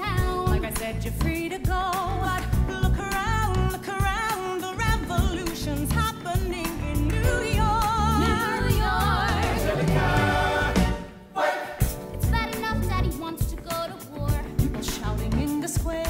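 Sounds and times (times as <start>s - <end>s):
steady drum beat: 0.0s - 11.2s, 11.8s - 16.0s
voices singing in harmony: 7.2s - 11.9s.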